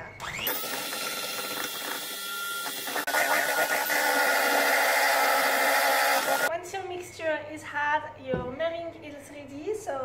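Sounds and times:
electric hand mixer whisking: 0.3s - 6.5s.

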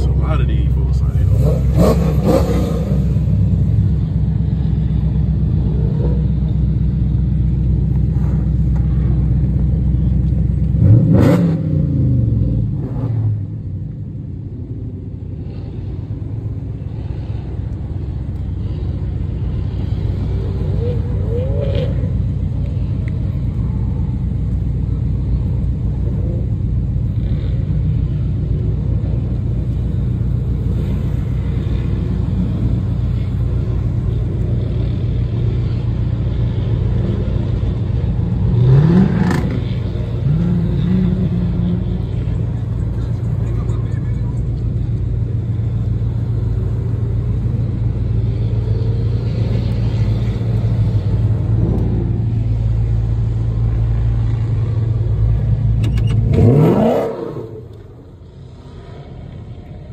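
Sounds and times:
car engine rumbling and revving: 0.0s - 59.9s.

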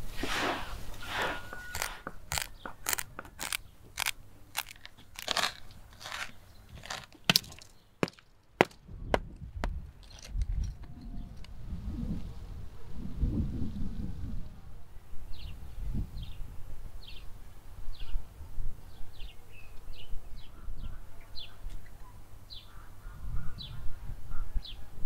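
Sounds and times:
coarse salt crunching: 0.1s - 10.5s
hammer cracking salt crust: 1.5s - 10.3s
wind rumbling on microphone: 8.6s - 21.5s, 23.0s - 25.0s.

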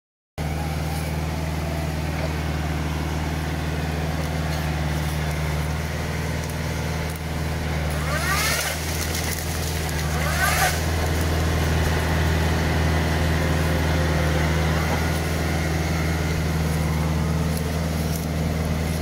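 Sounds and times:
tractor engine humming: 0.4s - 19.0s
hiss with rising squeaks: 10.2s - 11.0s.

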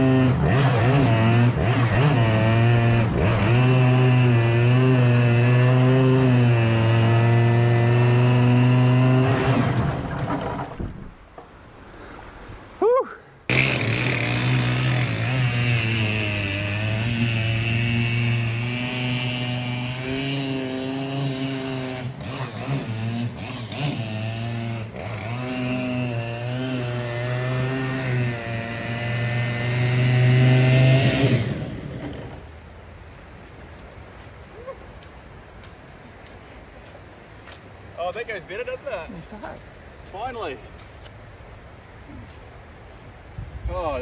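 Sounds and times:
two-stroke boat motor revving: 0.0s - 10.1s, 13.5s - 32.5s.

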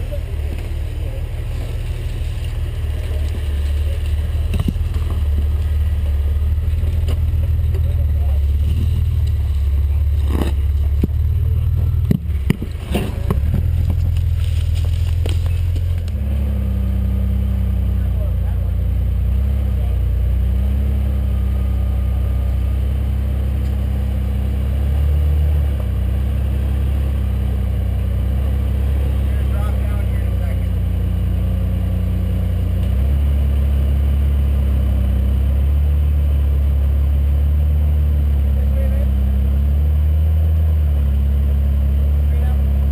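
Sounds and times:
vehicle engine idling: 0.0s - 42.9s
sharp knocks and clicks: 12.0s - 14.3s.

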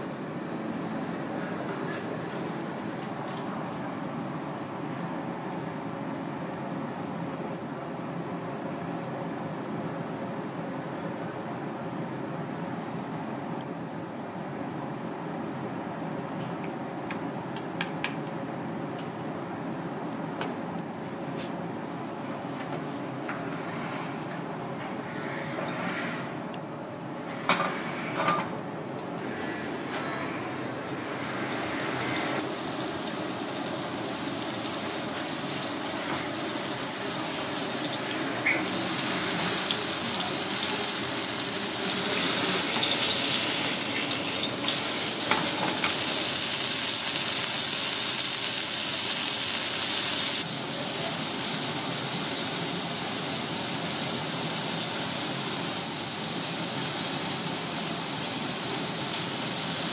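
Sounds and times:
fish frying in oil: 31.3s - 59.9s.

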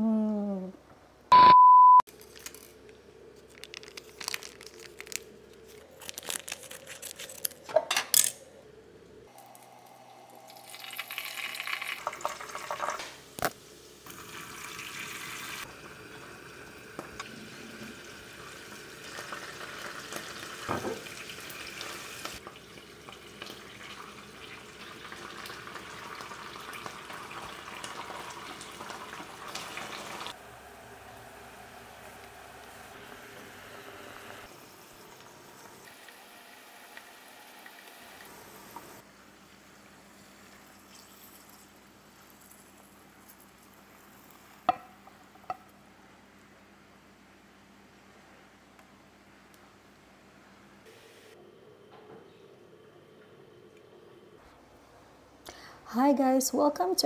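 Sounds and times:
short high beep: 1.3s - 2.0s
kitchenware clicks and clatter: 7.7s - 8.4s.

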